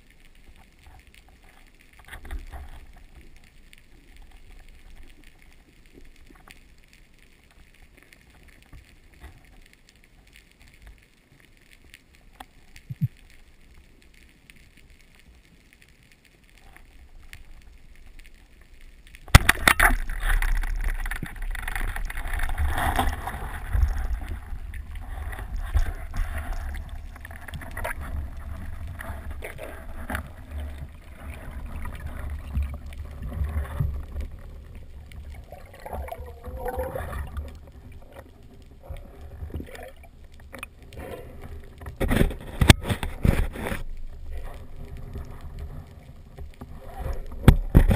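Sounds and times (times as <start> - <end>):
rumbling underwater noise: 15.8 - 47.9.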